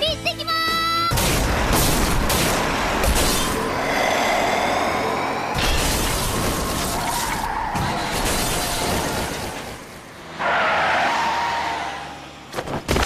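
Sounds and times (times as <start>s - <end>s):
crash with shattering glass: 7.8s - 9.6s.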